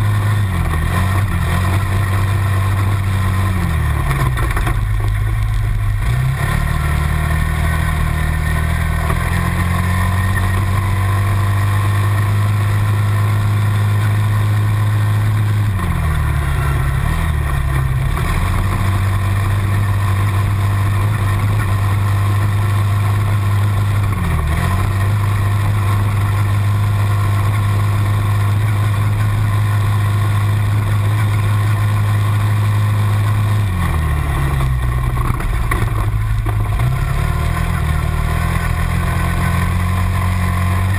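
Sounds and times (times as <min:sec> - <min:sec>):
quad bike engines running: 0:00.0 - 0:40.9.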